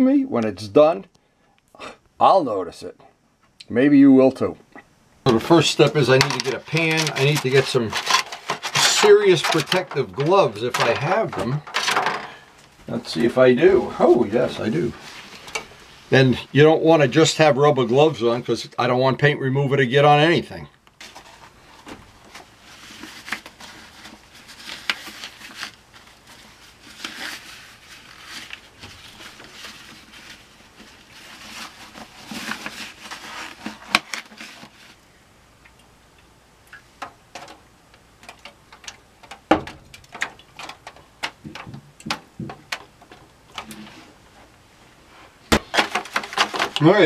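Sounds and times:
rubber gloves rustling: 5.2 - 18.4, 20.9 - 35.1, 37.0 - 47.0
small clicks and knocks: 36.7 - 43.8.

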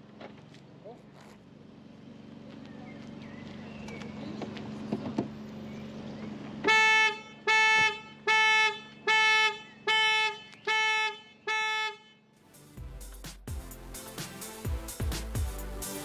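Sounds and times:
car horn blasts: 6.6 - 12.4.

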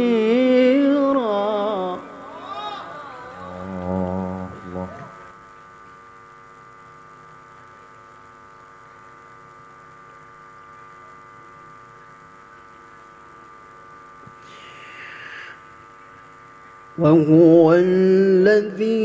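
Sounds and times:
electrical hum: 0.0 - 19.0
breath into microphone: 14.4 - 15.6.

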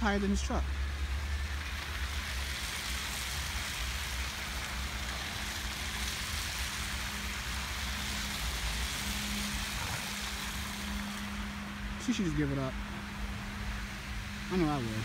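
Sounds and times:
low traffic rumble: 0.0 - 15.0
tyres hissing through slush: 0.0 - 15.0.

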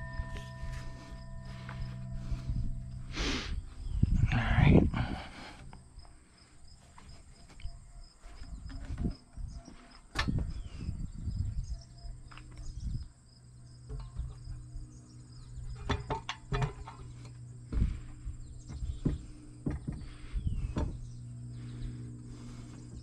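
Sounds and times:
insects calling: 0.0 - 23.0
knocks of wooden post handled: 18.7 - 21.0.

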